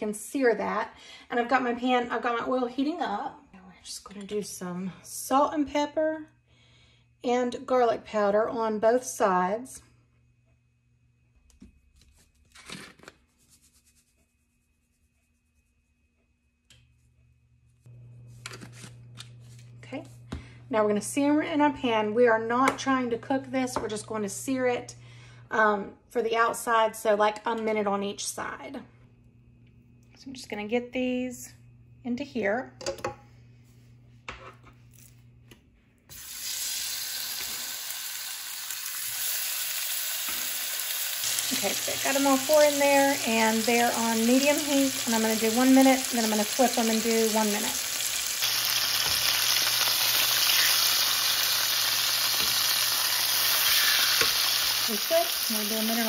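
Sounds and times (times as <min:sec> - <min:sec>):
low steady hum: 0:13.4 - 0:36.2
meat sizzling in hot oil: 0:36.1 - 0:56.0
patter of seasoning: 0:36.1 - 0:56.0.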